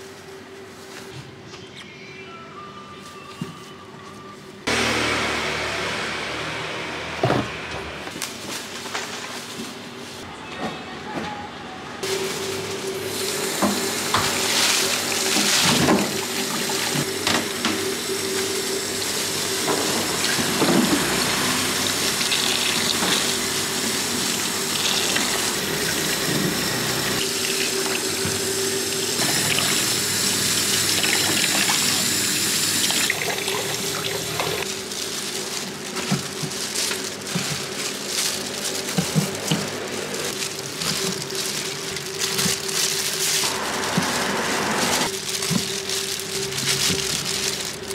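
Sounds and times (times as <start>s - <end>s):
tap water running into a sink: 20.1s - 34.6s.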